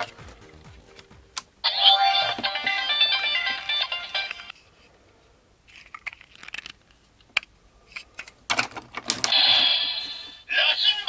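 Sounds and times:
electronic toy sound effect: 0:01.6 - 0:04.5
plastic toy clicks and rattles: 0:05.8 - 0:07.5.

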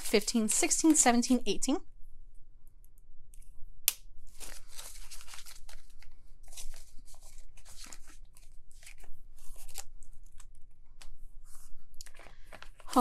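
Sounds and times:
paper bills shuffling: 0:00.0 - 0:01.4, 0:04.3 - 0:10.5
plastic envelopes crinkling: 0:00.0 - 0:01.4, 0:04.3 - 0:10.6.

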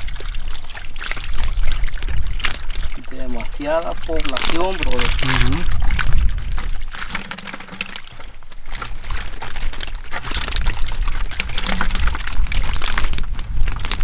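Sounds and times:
fish slapping and flopping on mesh: 0:00.0 - 0:14.0.

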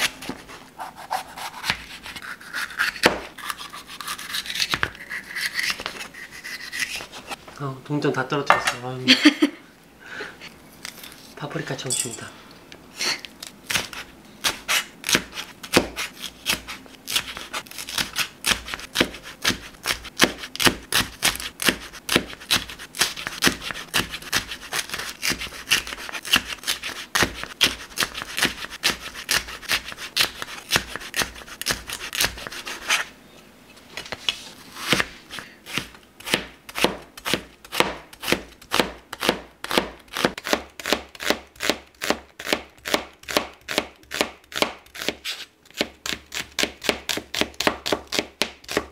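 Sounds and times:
knife chopping on plastic board: 0:17.9 - 0:32.8, 0:35.7 - 0:48.9.

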